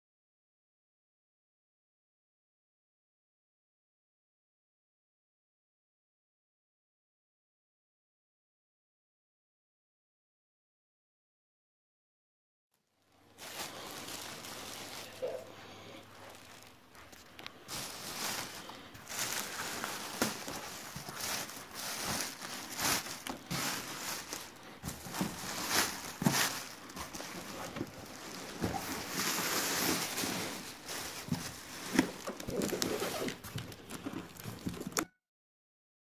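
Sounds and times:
plastic bag crinkling: 12.9 - 35.0.

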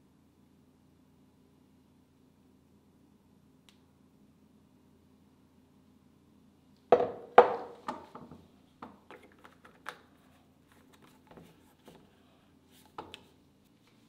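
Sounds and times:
kitchenware clicking and knocking: 6.9 - 8.1.

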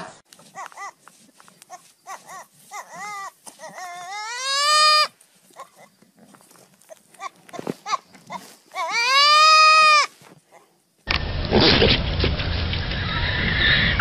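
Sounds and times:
young goat bleating: 0.5 - 1.0, 1.7 - 5.9, 6.9 - 10.2.

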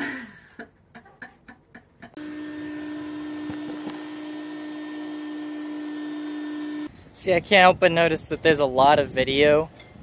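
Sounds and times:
small motor humming: 2.2 - 6.9.

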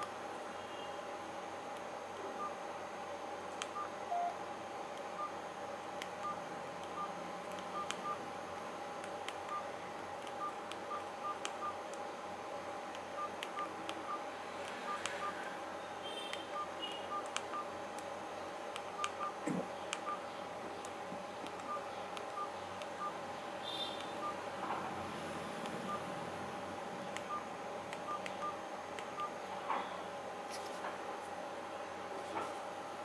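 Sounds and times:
steady hum: 0.0 - 33.0
phone key beeps: 3.8 - 4.3, 7.7 - 8.2, 13.2 - 14.2, 16.5 - 17.7, 28.0 - 28.6, 29.2 - 29.4.

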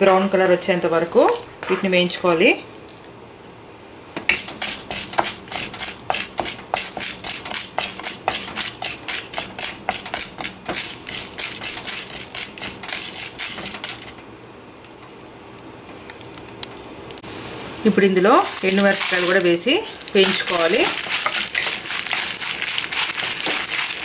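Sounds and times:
wooden spatula scraping a pan: 20.2 - 24.0.

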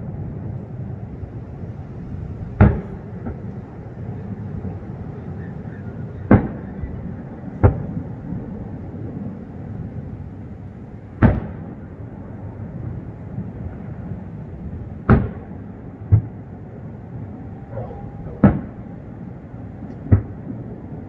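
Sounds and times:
fireworks booming: 2.4 - 10.0, 11.1 - 21.0
low rumble: 12.0 - 21.0.

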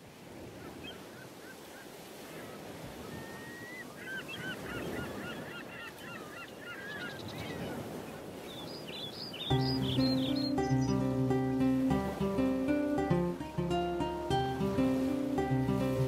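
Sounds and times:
birds calling: 2.6 - 16.0
high bird chirps: 8.6 - 11.3.

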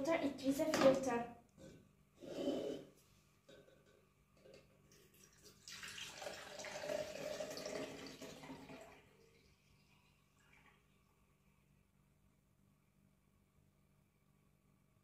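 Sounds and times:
liquid pouring and splashing: 4.8 - 11.2.

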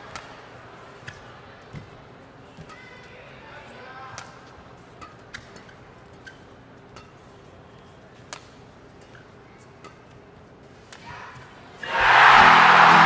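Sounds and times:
rackets striking shuttlecock: 0.0 - 0.4, 4.1 - 11.0
hall murmur: 11.8 - 13.0.

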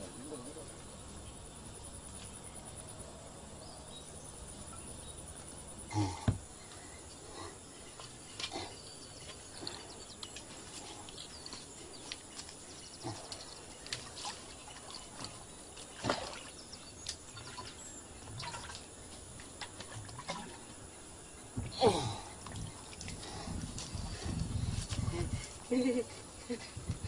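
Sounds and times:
birds chirping: 0.0 - 19.2, 19.8 - 27.0
water splashing and gurgling: 14.0 - 16.7, 17.3 - 18.9, 19.8 - 20.8.

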